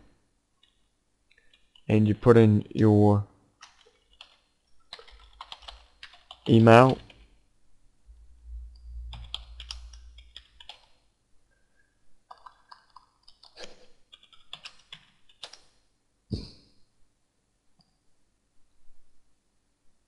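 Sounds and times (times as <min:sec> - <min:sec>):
keyboard typing clicks: 0:03.6 - 0:07.2, 0:09.1 - 0:11.0, 0:12.3 - 0:15.7.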